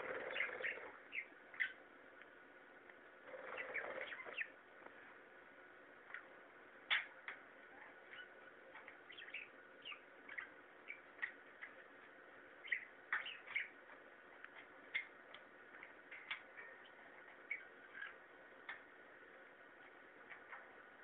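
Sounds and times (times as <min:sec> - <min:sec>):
parrot chirping: 0:00.0 - 0:01.8, 0:03.3 - 0:04.6, 0:06.9 - 0:11.8, 0:12.6 - 0:13.9, 0:14.6 - 0:18.8.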